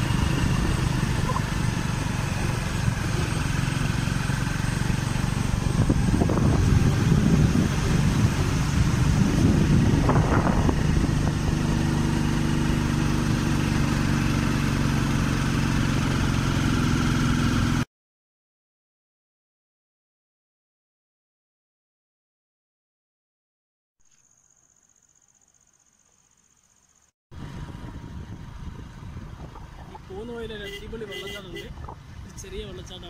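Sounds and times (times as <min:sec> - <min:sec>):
vehicle engine and road noise: 0:00.0 - 0:17.9, 0:26.0 - 0:33.0.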